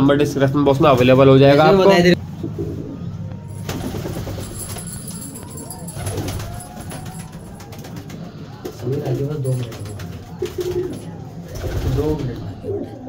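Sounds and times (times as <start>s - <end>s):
pigeons cooing: 9.7s - 13.0s.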